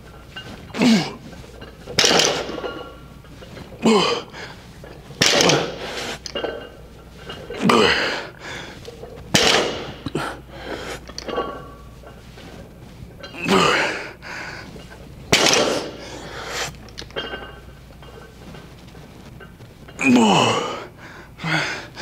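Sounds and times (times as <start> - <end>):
man grunting: 3.8 - 4.3, 20.0 - 21.6
man breathing out hard: 20.6 - 22.0.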